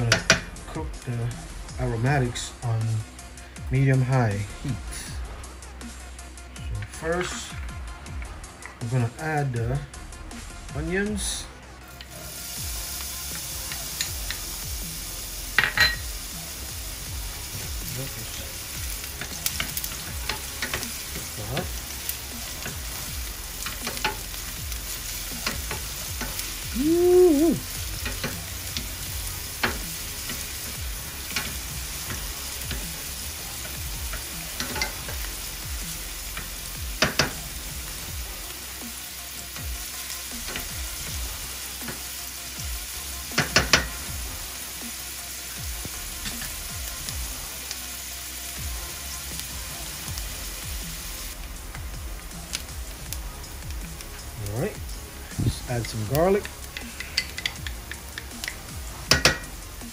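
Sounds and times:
onions sizzling in a pan: 10.7s - 59.9s
sharp taps on a pan: 37.0s - 37.4s, 43.4s - 43.9s.

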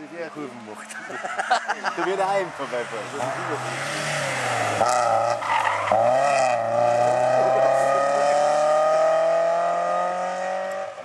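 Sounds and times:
car engine accelerating: 2.7s - 11.0s.

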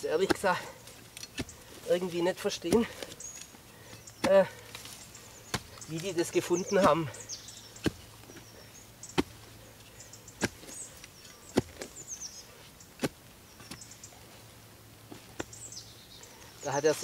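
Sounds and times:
birds chirping: 0.0s - 17.0s
spade chopping into soil: 0.1s - 7.2s, 7.8s - 8.5s, 9.1s - 9.5s, 10.4s - 12.1s, 13.0s - 13.9s, 15.1s - 15.6s.

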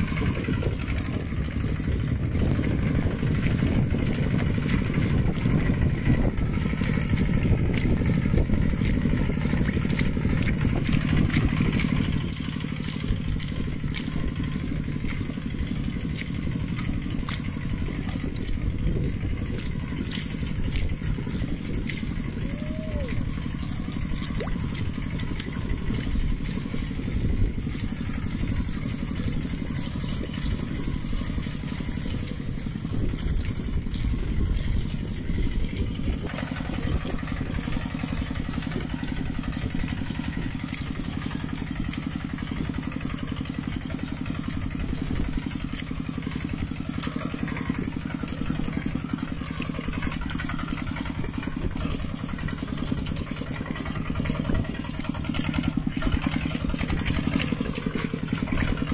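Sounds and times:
tractor engine chugging: 0.0s - 58.9s.

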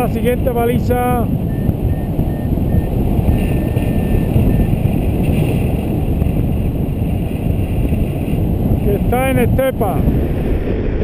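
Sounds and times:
wind buffeting microphone: 0.0s - 11.0s
variometer high beeps: 0.9s - 4.8s.

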